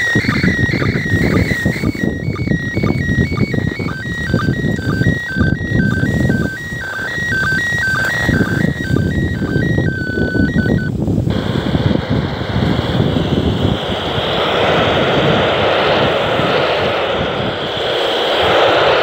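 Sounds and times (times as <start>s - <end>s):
electronic beeping tones: 0.0s - 10.9s
radio static hiss: 0.0s - 19.0s
wind gusting on microphone: 0.0s - 19.0s.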